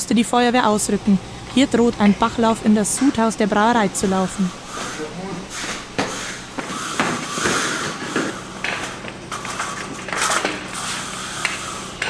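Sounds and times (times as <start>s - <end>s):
low steady hum: 0.0s - 10.0s
equipment clanking: 0.3s - 10.8s
hurried heavy boot footsteps: 4.6s - 9.1s.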